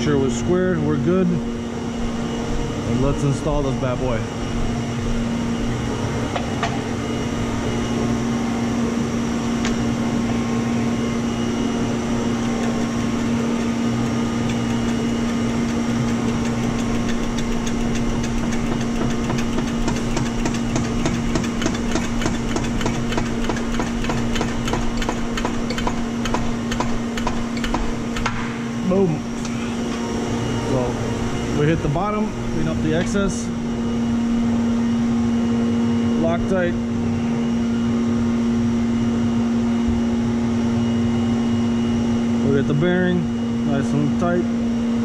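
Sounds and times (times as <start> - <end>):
steady hum: 0.0 - 45.0
hydraulic pump clicking: 12.4 - 28.5.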